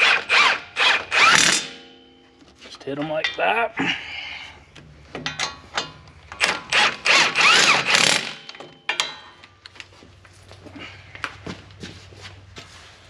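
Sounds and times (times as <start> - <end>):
impact gun bursts: 0.0 - 1.9.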